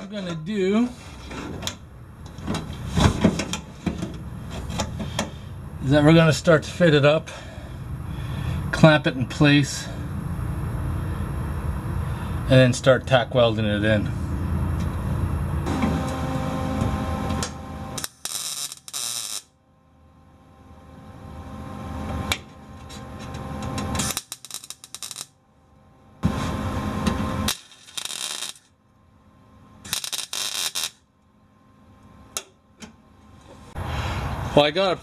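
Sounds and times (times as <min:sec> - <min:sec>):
welder arc crackling: 0:17.4 - 0:19.5, 0:23.8 - 0:25.4, 0:26.2 - 0:28.7, 0:29.8 - 0:31.0.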